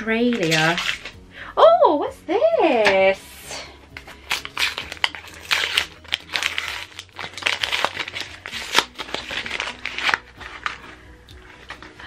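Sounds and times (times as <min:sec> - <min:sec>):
paper wrapping crinkling: 0:00.3 - 0:01.1, 0:04.0 - 0:12.0.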